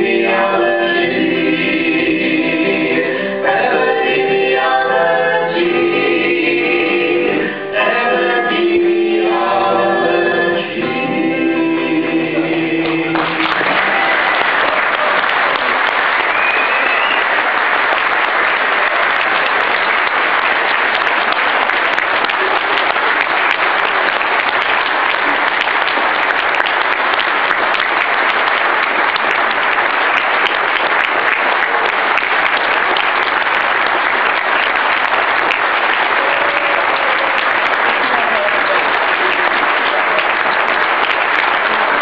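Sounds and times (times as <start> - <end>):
audience applauding: 12.8 - 42.0.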